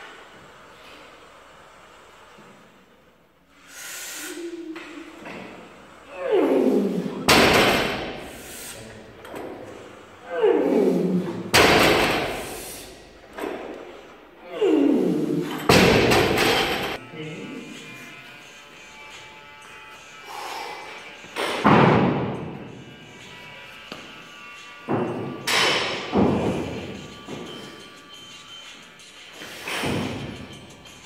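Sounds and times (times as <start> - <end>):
man breathing forcefully: 12.3 - 13.0.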